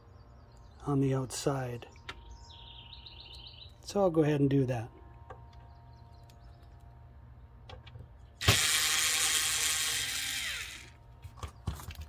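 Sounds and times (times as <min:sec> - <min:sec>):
power screwdriver whining: 0:08.4 - 0:11.0.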